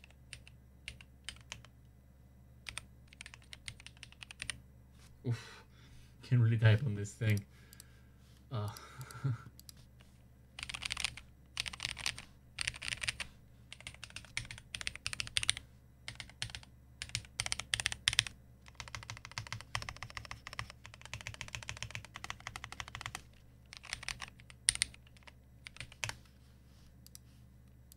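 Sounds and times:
mechanical keyboard typing: 0.0s - 1.7s, 2.6s - 4.6s, 10.6s - 26.2s.

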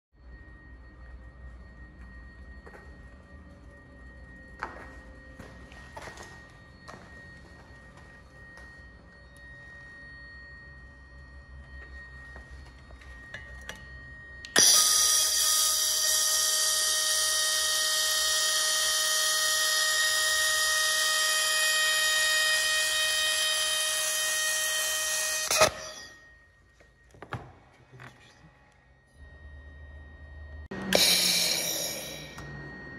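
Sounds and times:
high-pitched whine: 0.1s - 32.9s
faint machine hum: 0.2s - 14.7s.

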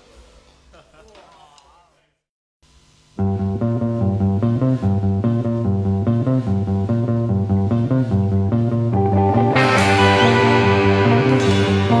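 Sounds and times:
bass guitar run: 3.2s - 12.0s
instrumental rock music: 3.2s - 12.0s.

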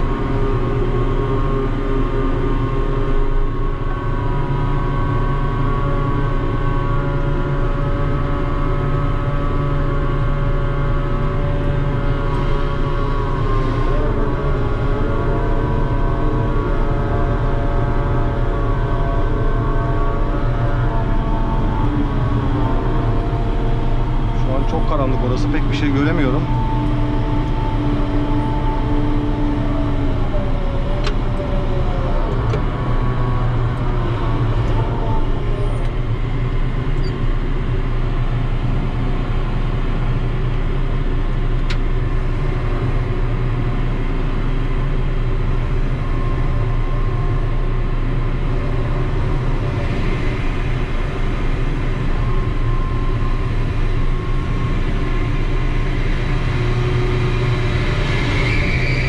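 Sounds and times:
crane machinery droning: 0.0s - 59.0s.

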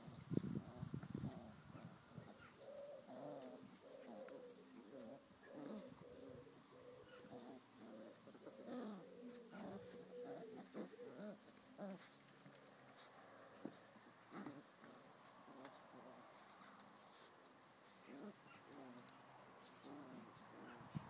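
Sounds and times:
puppies whimpering and whining: 2.2s - 12.2s.

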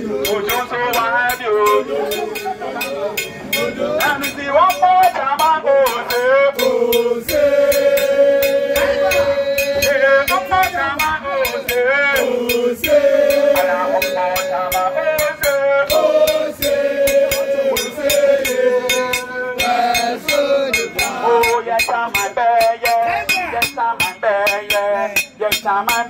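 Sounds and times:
sharp rhythmic strikes: 0.0s - 26.0s.

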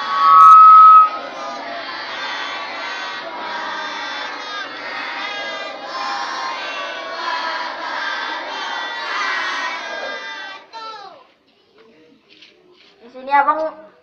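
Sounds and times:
children chanting and shouting: 0.0s - 0.2s, 1.0s - 11.4s.

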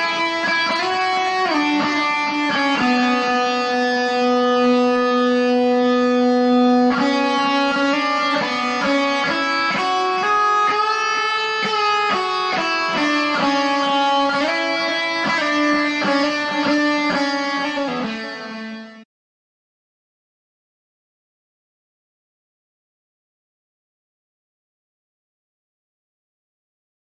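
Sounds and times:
instrumental background music: 0.0s - 19.0s.

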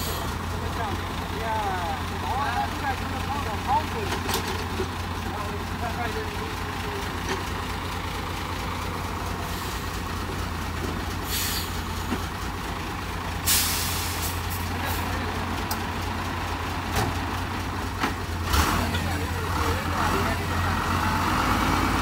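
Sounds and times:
air brakes hissing: 0.0s - 0.4s, 9.4s - 10.0s, 11.2s - 12.2s, 13.4s - 15.0s
truck engine running low: 0.0s - 22.0s
compressed air hissing: 13.4s - 14.4s.

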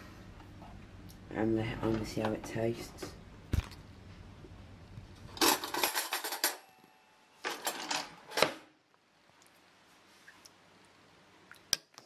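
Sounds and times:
cutlery jangling in a drawer: 5.4s - 6.6s.

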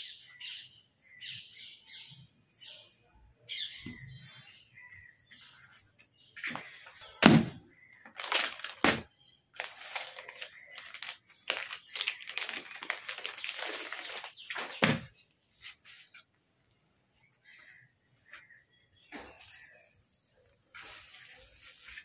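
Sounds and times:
plastic packaging crinkling: 8.1s - 15.0s, 19.4s - 22.0s.

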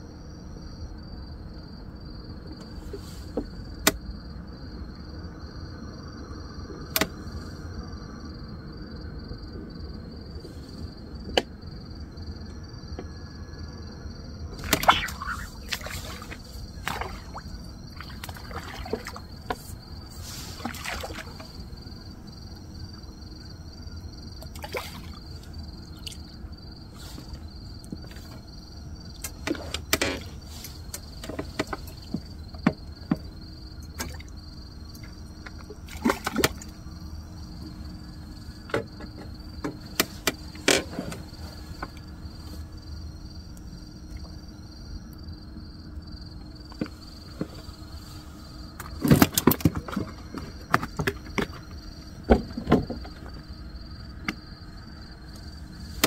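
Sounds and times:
insects chirring: 0.0s - 56.0s
fishing gear rustling and clicking: 46.8s - 51.9s.

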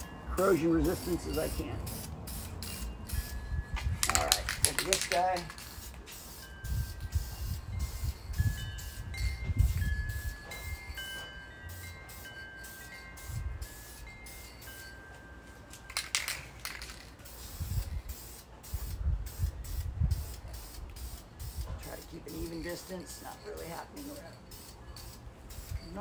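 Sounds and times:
aerosol can spraying: 4.0s - 10.4s, 16.0s - 22.9s
light ringing chime tones: 7.7s - 15.9s, 22.6s - 26.0s.

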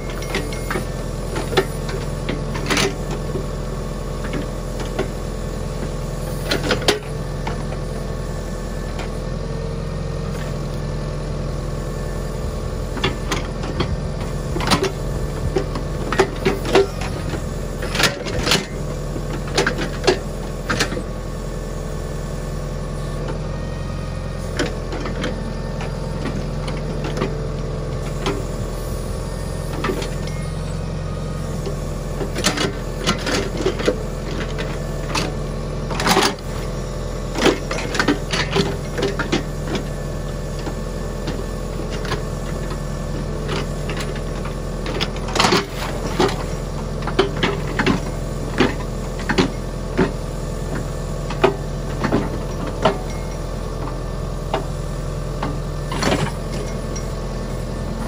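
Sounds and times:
tractor diesel engine running: 0.0s - 58.0s
backhoe metal knocks and clanks: 12.6s - 21.2s, 31.5s - 58.0s.

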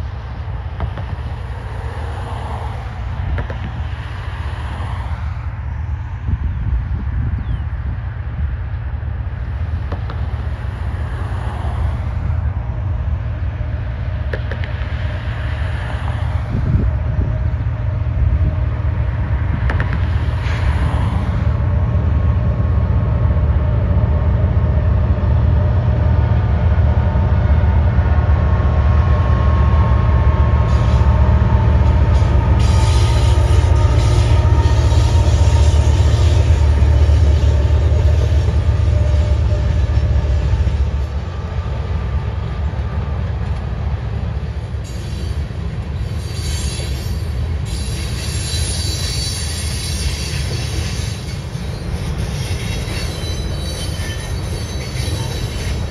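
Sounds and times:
freight train rumble: 0.0s - 55.9s
train wheels squealing: 29.0s - 41.1s, 44.6s - 55.9s
train cars clattering: 29.7s - 55.9s.

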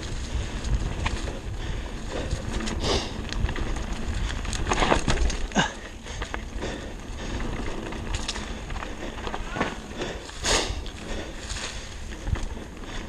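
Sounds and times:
bike rattling over bumps: 0.0s - 13.0s.

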